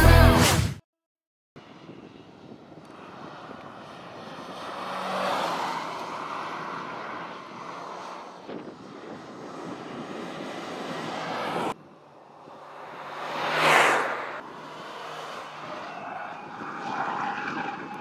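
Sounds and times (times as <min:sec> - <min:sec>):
car engine driving past: 0:03.1 - 0:17.3.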